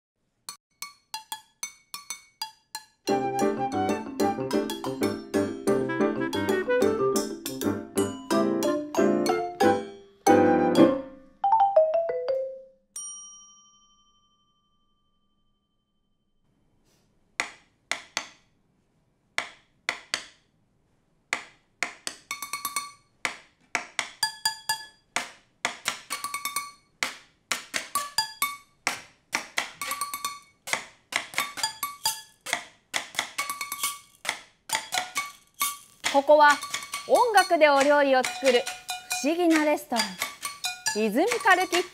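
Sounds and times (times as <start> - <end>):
sticks striking pots and jars: 0.7 - 9.8, 19.4 - 20.4, 21.3 - 41.9
notes falling in pitch: 3.1 - 12.6.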